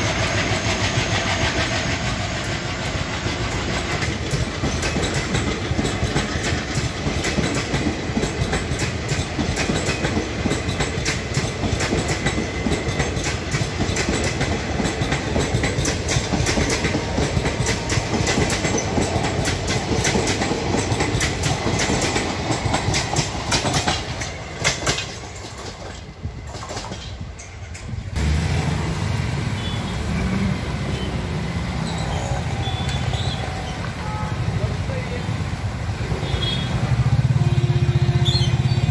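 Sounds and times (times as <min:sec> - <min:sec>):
wheels clicking over rail joints: 0:00.0 - 0:28.3
train rumbling past: 0:00.0 - 0:38.9
motorcycle engines: 0:28.1 - 0:38.9.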